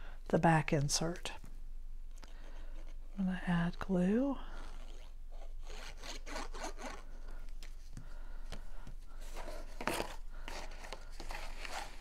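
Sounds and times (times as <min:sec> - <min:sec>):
sheets of card rustling: 0:08.5 - 0:12.0.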